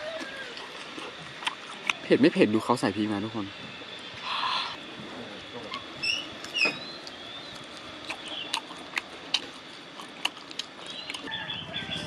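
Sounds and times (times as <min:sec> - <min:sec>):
person chewing: 0:00.0 - 0:02.0, 0:06.4 - 0:11.4
wet clicks and lip smacks: 0:06.4 - 0:11.3.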